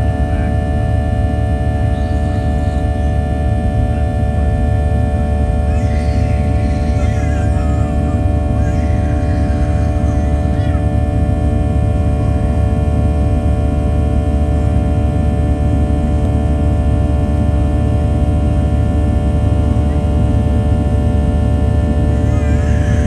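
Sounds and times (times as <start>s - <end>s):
aircraft cabin low rumble: 0.0s - 23.0s
whining jet engine tones: 0.0s - 23.0s.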